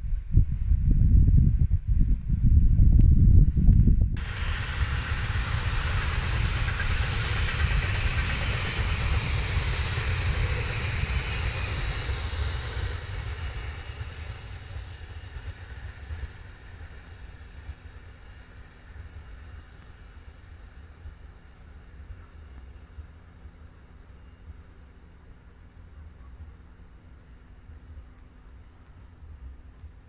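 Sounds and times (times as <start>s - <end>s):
electric train rolling on rails: 4.1s - 30.0s.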